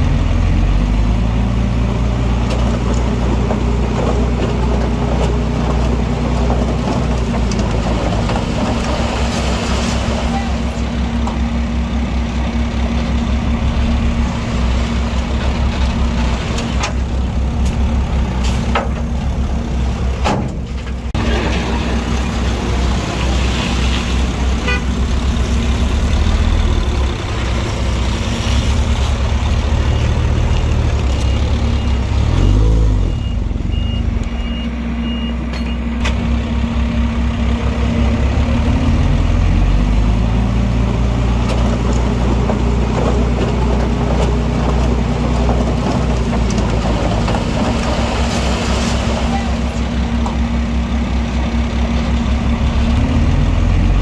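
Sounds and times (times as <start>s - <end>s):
diesel engines of earthmoving machinery: 0.0s - 54.0s
reversing beeper: 30.4s - 35.9s
engine revving: 31.5s - 33.8s, 52.6s - 54.0s.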